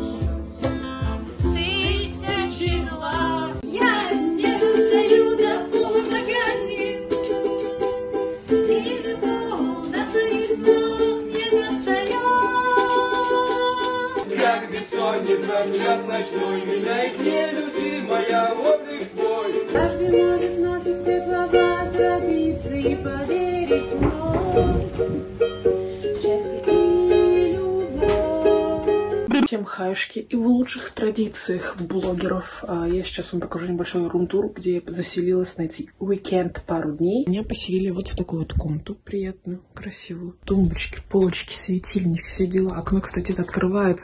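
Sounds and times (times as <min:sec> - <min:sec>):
ukulele plucked notes and chords: 0:00.0 - 0:29.5.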